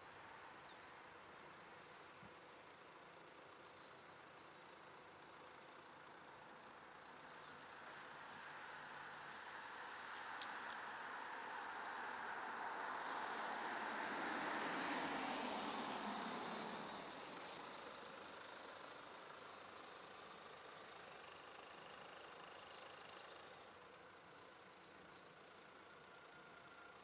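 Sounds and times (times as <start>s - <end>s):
car approaching and stopping: 0.2s - 27.0s
small bird chirping: 0.5s - 4.7s, 19.7s - 26.0s.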